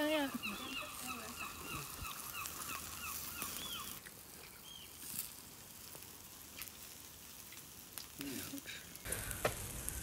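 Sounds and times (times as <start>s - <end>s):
birds honking calls: 0.0s - 4.0s.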